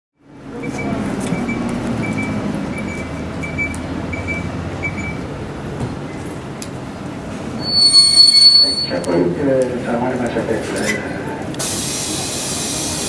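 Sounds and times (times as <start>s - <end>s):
bus diesel engine rumble: 0.2s - 9.1s, 10.4s - 13.0s
short high beeps: 7.6s - 8.9s.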